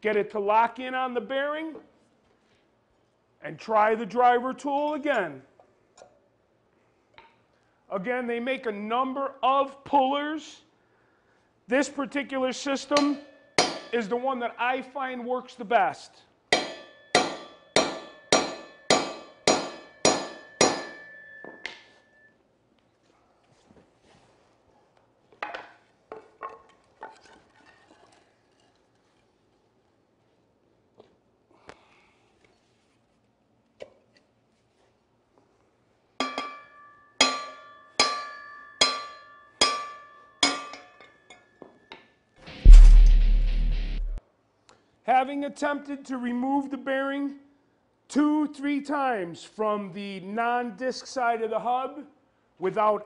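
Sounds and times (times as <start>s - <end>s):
hammer striking metal: 12.9s - 14.0s, 16.5s - 21.9s, 36.2s - 40.9s, 42.5s - 44.2s.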